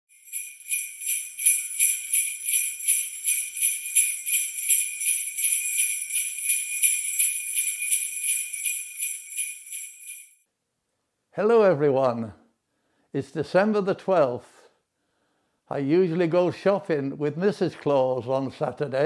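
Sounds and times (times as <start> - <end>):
sleigh bells shaking: 0.1 - 10.4.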